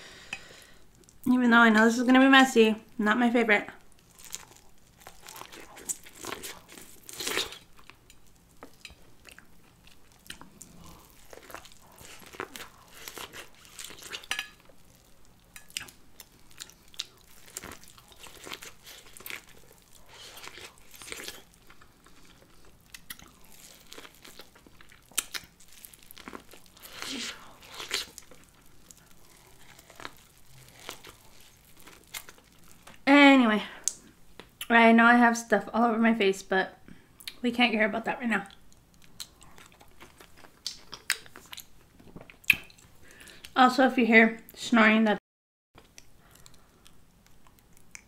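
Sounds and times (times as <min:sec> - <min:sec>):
crunching corn on the cob: 0:10.1 - 0:33.0.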